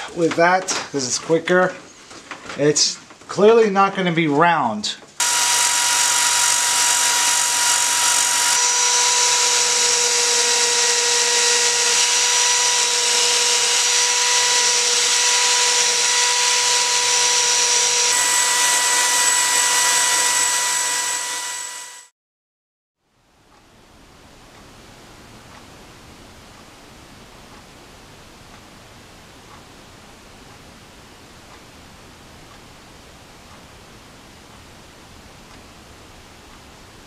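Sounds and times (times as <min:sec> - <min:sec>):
power drill motor whine: 0:05.2 - 0:22.1.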